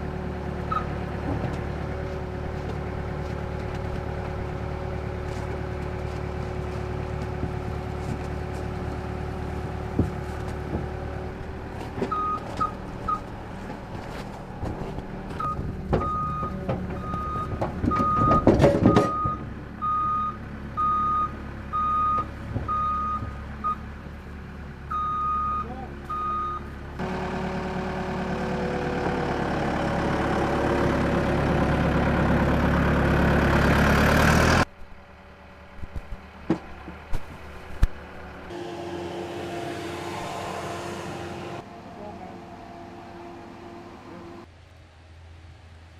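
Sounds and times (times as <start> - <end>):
diesel engine running: 0.0 - 45.9
loud mechanical noise: 27.0 - 34.7, 35.7 - 44.5.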